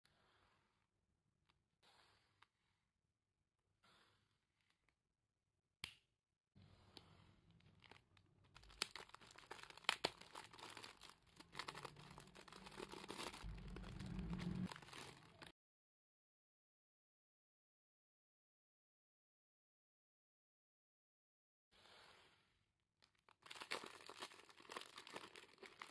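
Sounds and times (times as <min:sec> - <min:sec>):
plastic bag crinkling: 0:07.5 - 0:15.5, 0:23.3 - 0:25.9.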